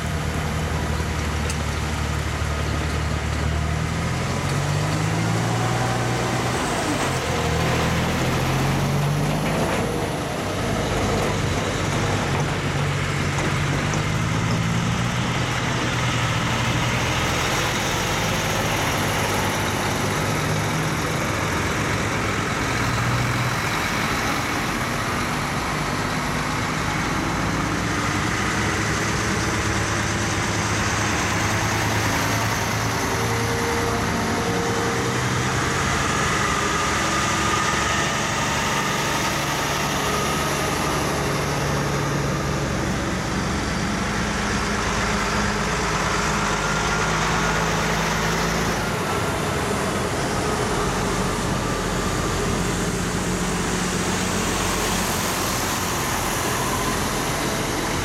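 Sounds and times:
diesel trucks driving past: 0.0 - 58.0.

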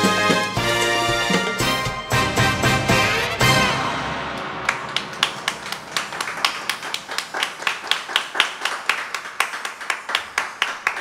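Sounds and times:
hands clapping rhythmically: 4.4 - 11.0.

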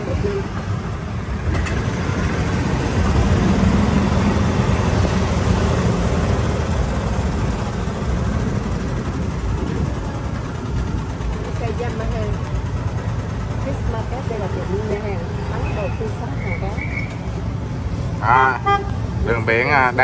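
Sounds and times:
road and wind rumble: 0.0 - 20.0.

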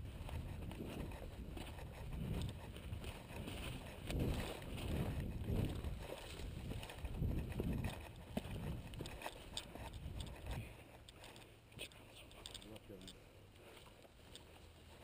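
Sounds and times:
wind rumbling on microphone: 0.0 - 10.9
clothes and gear rustling: 0.0 - 15.0
footsteps in dry grass: 0.0 - 15.0.

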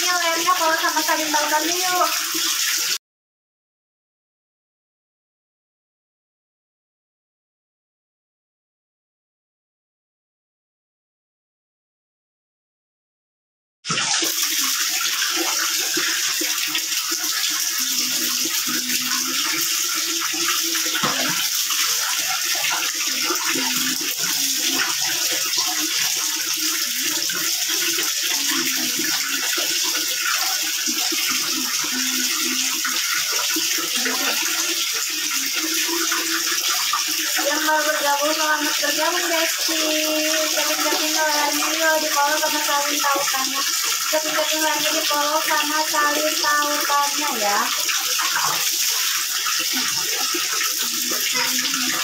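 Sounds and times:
water running into a bucket: 0.0 - 3.0, 13.9 - 52.0.

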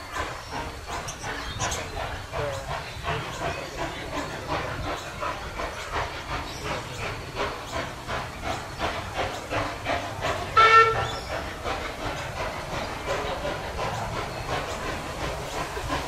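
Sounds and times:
steam locomotive chuffing: 0.0 - 16.0
locomotive whistle toot: 10.6 - 11.2.

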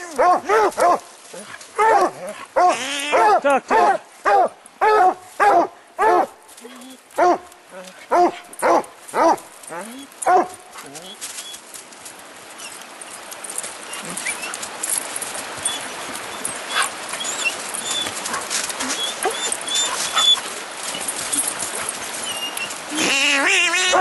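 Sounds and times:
scuffling in brush and snow: 0.0 - 24.0
dogs whining: 13.9 - 14.6, 15.6 - 24.0.

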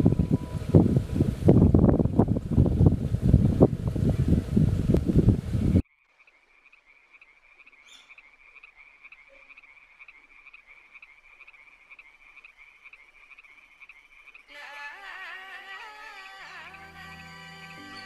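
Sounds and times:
frog trilling: 6.0 - 14.5
high chirp: 16.4 - 18.0.

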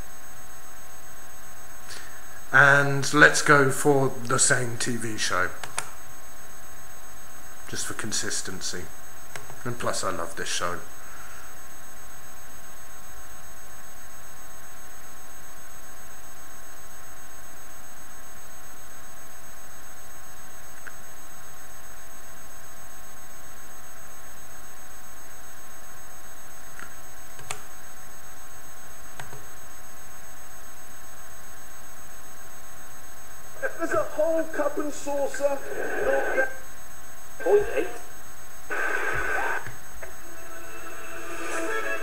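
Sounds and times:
background hiss: 0.0 - 42.0
faint clicks: 5.6 - 5.9
electrical whine: 31.0 - 42.0.

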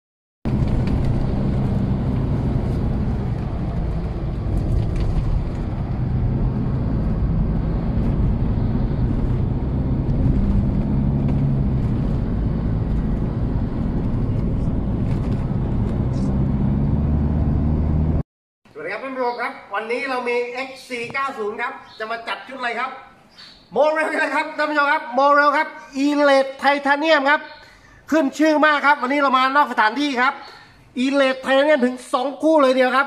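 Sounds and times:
engine and tyre drone: 0.5 - 18.2.

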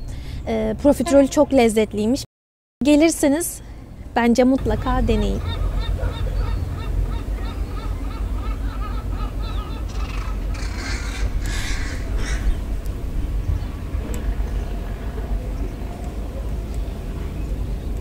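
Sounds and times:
gulls calling: 4.6 - 18.0
low rumble: 4.6 - 18.0.

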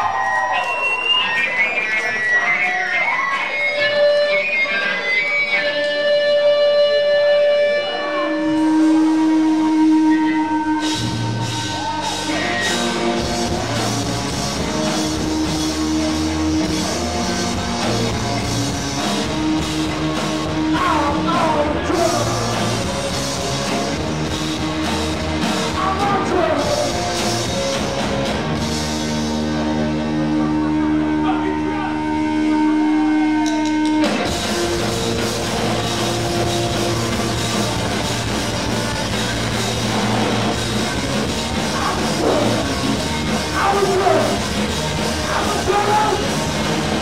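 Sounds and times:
punk rock band playing: 0.1 - 47.0
drums driving beat: 8.6 - 29.6, 33.4 - 47.0.

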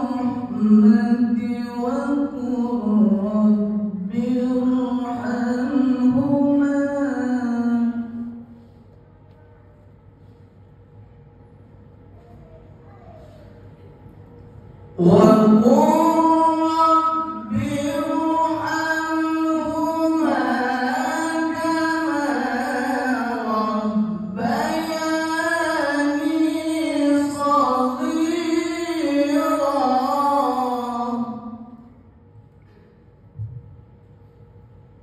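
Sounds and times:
man reciting melodically: 0.0 - 8.3, 15.0 - 31.8.

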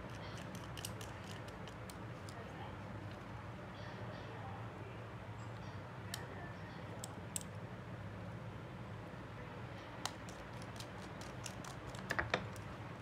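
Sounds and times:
small tools clicking and tapping: 0.0 - 2.4
steady low hum: 0.0 - 13.0.

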